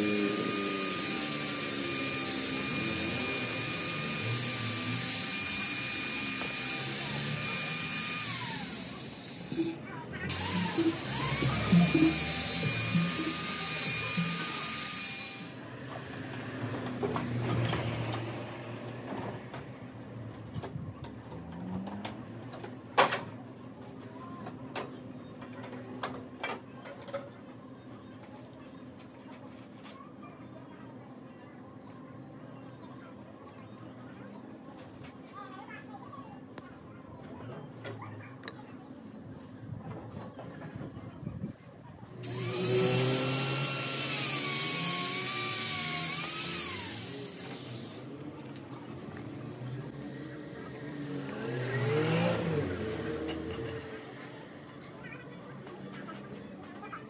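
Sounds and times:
thin high tone: 0.0s - 15.6s.

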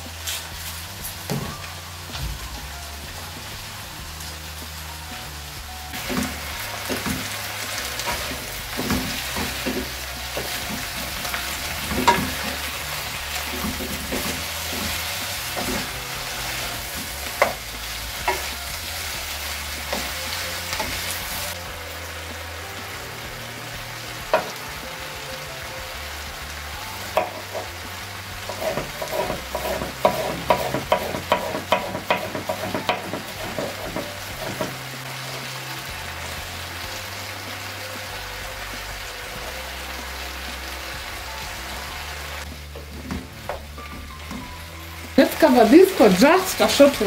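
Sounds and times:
vegetables sizzling in a wok: 0.0s - 47.0s
knife chopping on wooden board: 28.5s - 34.8s.

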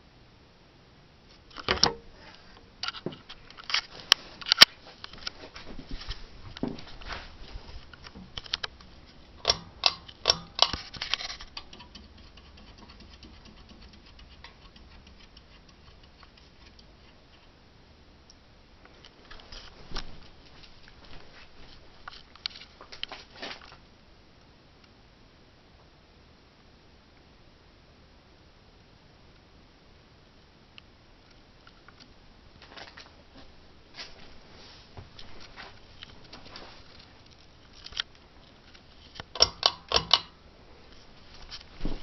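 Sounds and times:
ceiling fan hum: 0.0s - 42.0s
pull-chain switch clicks: 9.4s - 10.8s, 39.3s - 40.3s.

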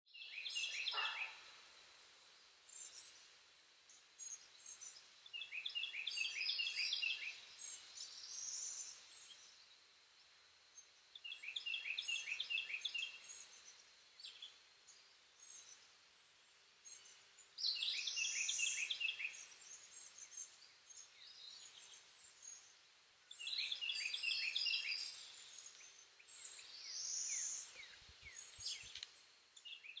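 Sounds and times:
songbird singing: 0.0s - 30.0s.

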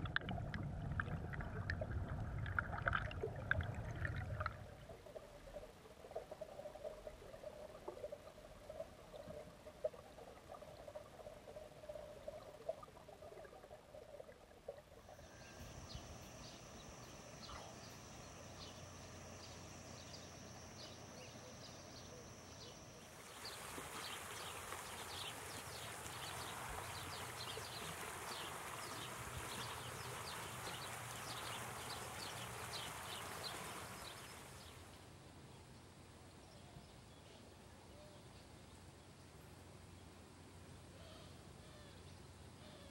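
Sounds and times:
insects chirring chorus: 15.1s - 34.8s
high insect buzz: 15.2s - 24.6s.

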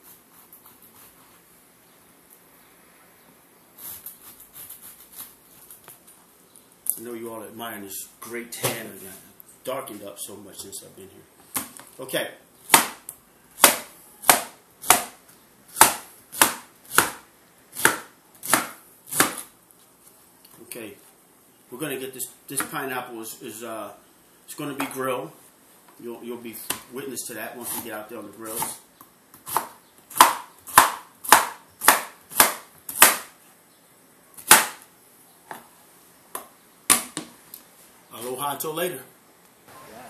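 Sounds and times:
knife chopping on plastic board: 12.7s - 13.0s, 13.6s - 17.2s, 17.8s - 19.5s, 29.4s - 33.3s, 34.4s - 34.8s.

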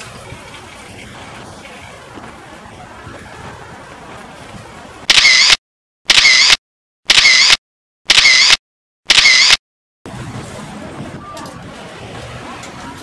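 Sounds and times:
camera shutter: 5.1s - 9.6s.

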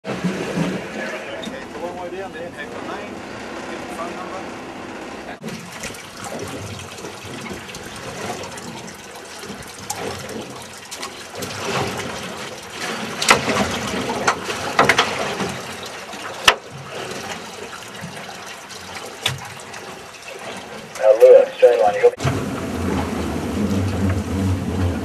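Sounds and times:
water splashing against boat hull: 0.0s - 2.2s, 5.4s - 25.0s
sharp knocks and clicks: 13.2s - 15.5s, 16.4s - 16.7s.

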